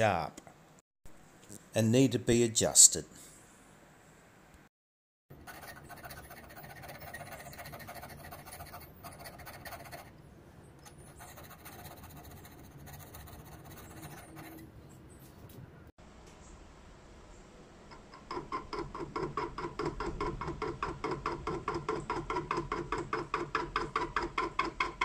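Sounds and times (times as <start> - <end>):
file rasping on metal: 5.4 - 10.1, 10.9 - 14.6.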